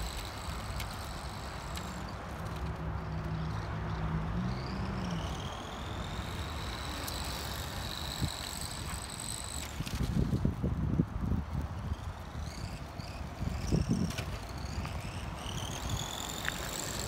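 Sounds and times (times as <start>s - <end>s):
electric motor whining: 4.5s - 10.4s, 12.4s - 17.0s
wind rumble on microphone: 7.9s - 17.0s.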